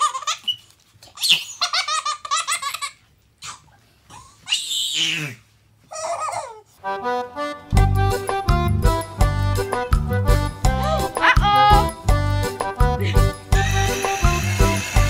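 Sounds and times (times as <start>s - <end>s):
baby giggling: 0.0s - 0.6s, 5.0s - 6.7s
baby squealing: 3.4s - 6.6s.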